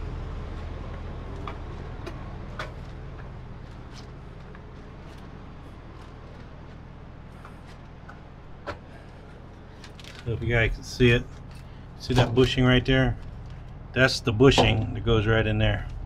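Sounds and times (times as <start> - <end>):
diesel truck engine idling: 0.0 - 16.0
footsteps on pavement: 0.4 - 10.4.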